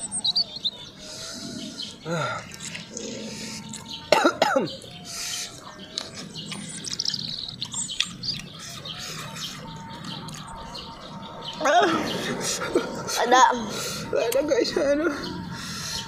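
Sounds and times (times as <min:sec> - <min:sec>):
birds chirping: 0:00.0 - 0:16.0
person coughing sharply: 0:04.1 - 0:04.8.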